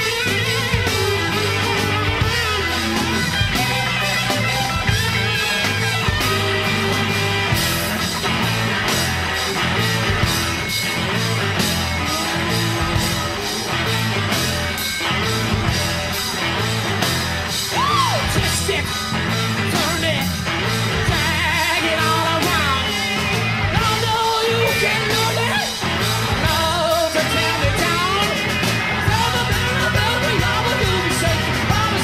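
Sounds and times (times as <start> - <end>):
drums and bass beat: 0.0 - 32.0
electric guitar: 0.0 - 32.0
man singing loudly: 21.0 - 23.0, 23.7 - 25.7, 26.4 - 32.0.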